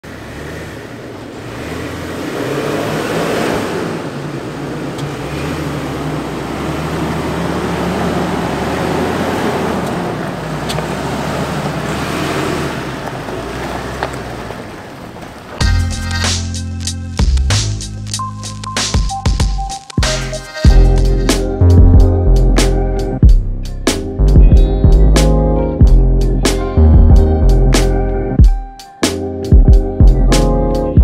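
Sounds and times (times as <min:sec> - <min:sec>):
tyre and trail noise: 0:00.0 - 0:16.6
truck engine running: 0:03.9 - 0:18.0.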